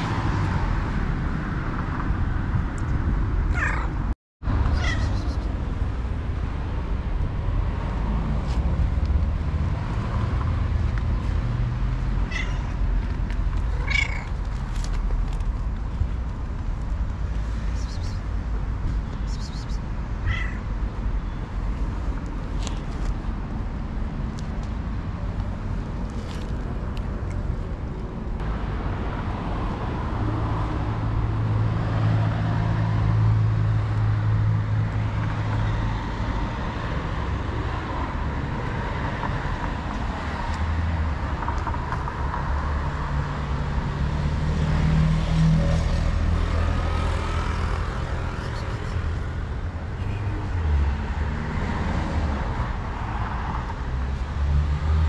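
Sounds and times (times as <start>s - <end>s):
deep vehicle engine hum: 0.0s - 21.0s, 44.7s - 50.6s
rumble of passing cars: 0.0s - 55.0s.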